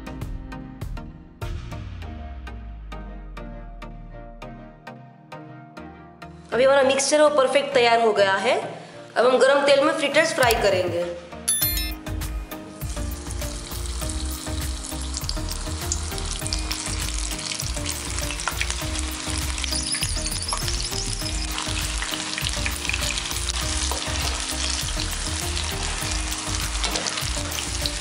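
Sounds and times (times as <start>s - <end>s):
batter deep-frying in hot oil: 12.7s - 28.0s.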